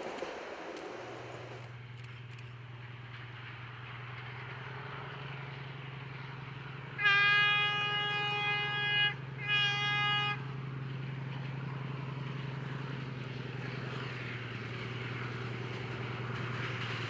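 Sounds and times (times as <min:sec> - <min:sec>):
low diesel engine hum: 0:00.0 - 0:17.0
train running noise: 0:00.0 - 0:17.0
locomotive horn: 0:06.7 - 0:12.1.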